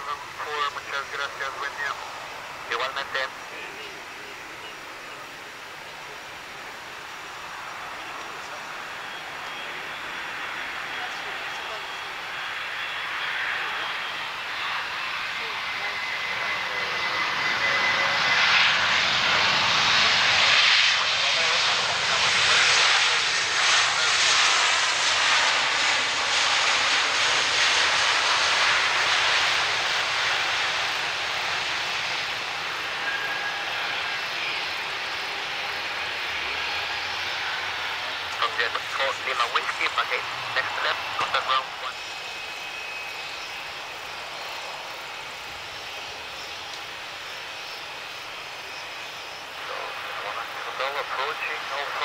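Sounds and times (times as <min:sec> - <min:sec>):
jet engines in reverse thrust: 0:00.0 - 0:52.0
faint thin whine: 0:21.1 - 0:52.0.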